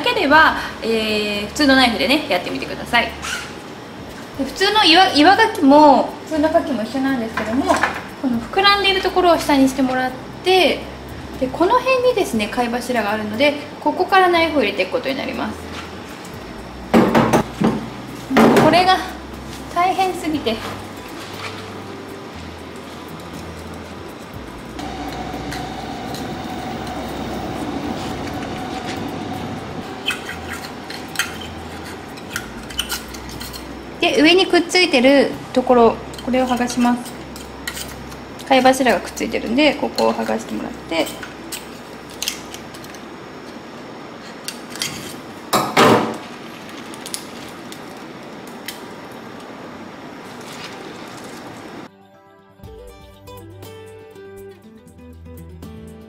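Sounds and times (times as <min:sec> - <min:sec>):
steady background hiss: 0:00.0 - 0:51.9
steady hum with whining tone: 0:00.0 - 0:51.9
knife blade scraping oyster shell: 0:30.1 - 0:33.7, 0:37.1 - 0:38.1.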